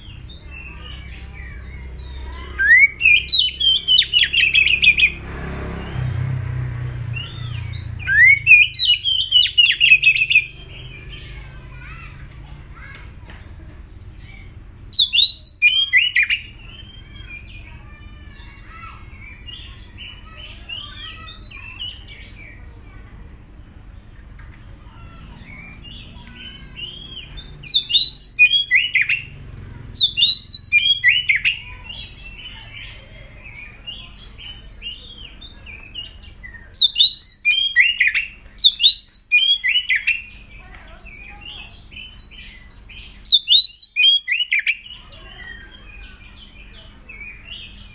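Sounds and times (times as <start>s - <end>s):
soft bird twittering: 0.0s - 47.9s
bird singing whistled phrases: 0.2s - 5.2s, 7.1s - 11.4s, 14.2s - 17.8s, 25.5s - 29.3s, 30.0s - 40.4s, 41.0s - 47.9s.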